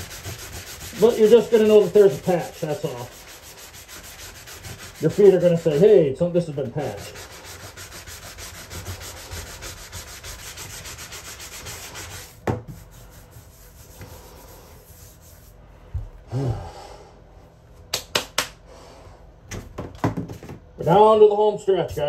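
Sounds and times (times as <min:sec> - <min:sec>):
sanding sponge rubbing: 0:00.0 - 0:15.6
knock: 0:12.4 - 0:12.7, 0:19.5 - 0:20.6.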